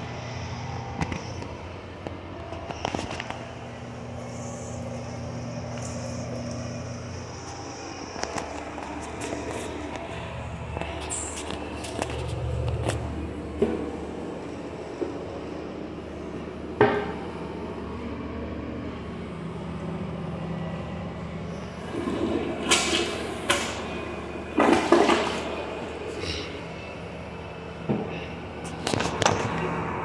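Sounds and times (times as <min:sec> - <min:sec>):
toilet flushing: 0:21.5 - 0:29.8.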